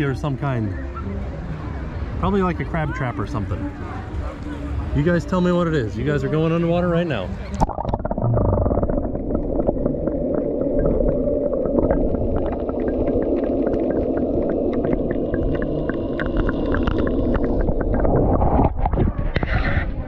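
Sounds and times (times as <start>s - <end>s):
muffled underwater wash: 7.0s - 20.0s.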